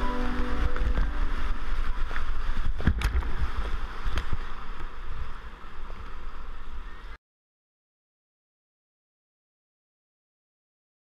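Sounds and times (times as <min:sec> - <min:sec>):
whitewater rushing: 0:00.0 - 0:06.8
water buffeting microphone: 0:00.0 - 0:07.2.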